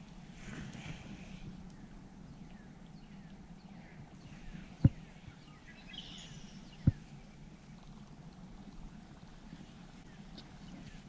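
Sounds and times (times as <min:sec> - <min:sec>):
faint bird chirps: 0:01.7 - 0:07.9.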